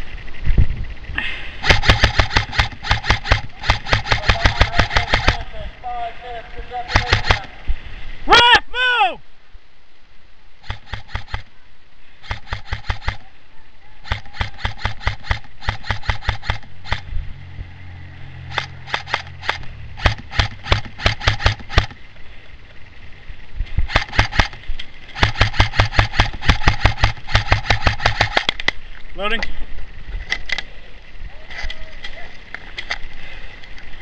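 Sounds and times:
gearbox whine: 0.0 - 7.5, 10.5 - 11.5, 14.0 - 34.0
airsoft rifle rapid shots: 1.6 - 5.6, 6.8 - 7.5, 10.6 - 11.5, 12.2 - 13.2, 14.0 - 17.1, 18.5 - 22.0, 23.9 - 24.6, 25.2 - 28.7.

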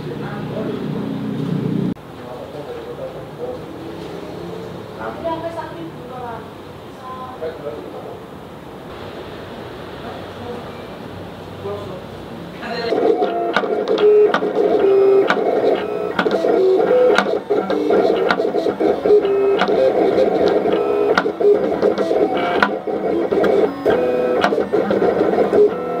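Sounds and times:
cutting plotter motors whining: 12.7 - 26.0.

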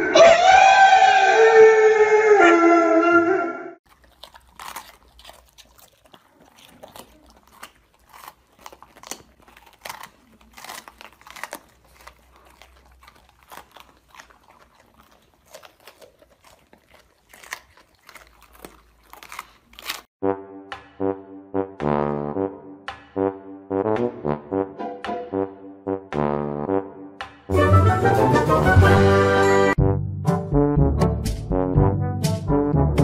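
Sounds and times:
dog howling: 0.0 - 3.7
dogs crunching peppers: 3.8 - 20.2.

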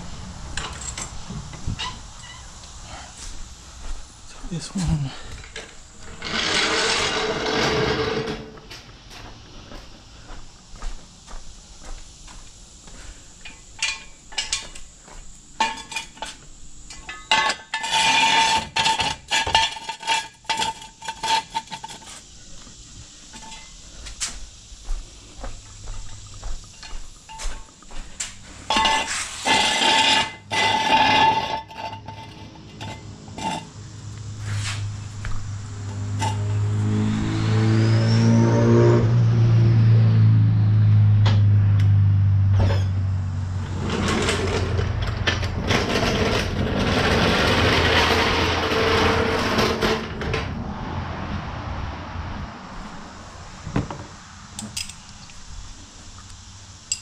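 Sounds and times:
metal tools clanking: 13.4 - 14.8, 15.6 - 22.2, 23.3 - 23.8, 26.2 - 33.7, 42.6 - 43.0, 54.6 - 55.1
low engine drone: 32.1 - 53.9.

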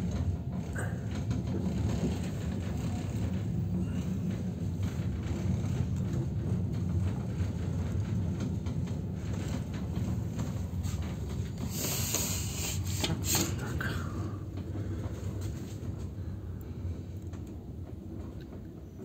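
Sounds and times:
train clicks and knocks: 0.0 - 19.0
train rumbling: 0.0 - 19.0
hiss: 11.6 - 13.7.

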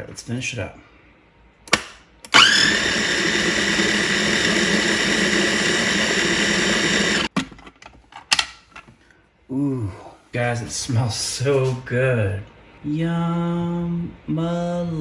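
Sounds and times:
food processor motor running: 2.4 - 7.3.

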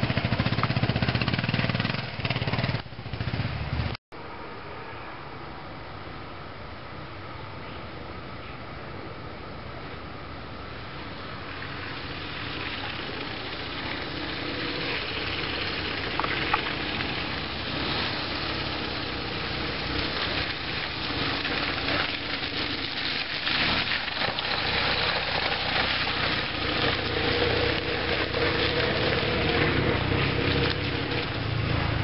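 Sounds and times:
motorcycle engine approaching: 0.0 - 4.0, 11.2 - 32.0.

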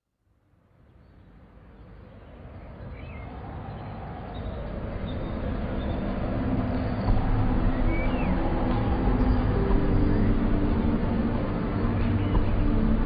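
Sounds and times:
street traffic noise: 0.6 - 13.0.

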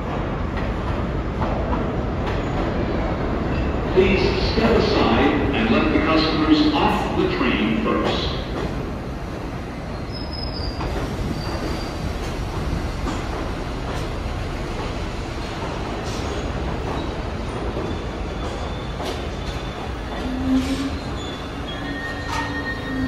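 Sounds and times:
train wheels rumbling on rail: 0.0 - 23.0
high wheel squeal: 17.9 - 23.0.

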